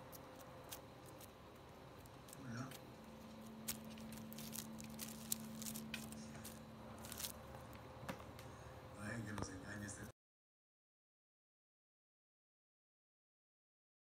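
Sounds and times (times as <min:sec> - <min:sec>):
steady low hum: 0:00.0 - 0:10.1.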